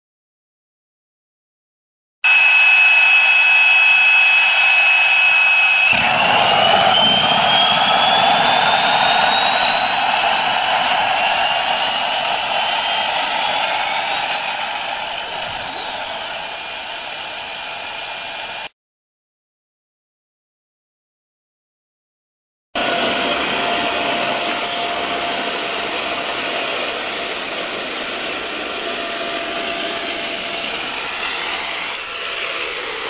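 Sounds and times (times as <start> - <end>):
jet engine whining: 2.2 - 18.7, 22.8 - 33.0
loud engine roar: 5.2 - 18.7, 22.8 - 33.0.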